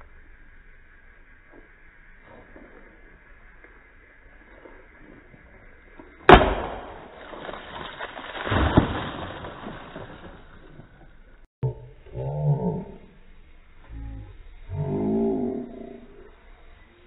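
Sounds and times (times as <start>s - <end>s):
liquid splashing: 6.4s - 11.0s.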